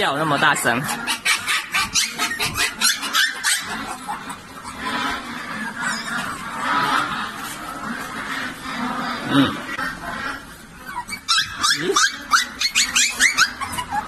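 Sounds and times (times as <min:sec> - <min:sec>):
puppies yelping: 0:00.0 - 0:14.0.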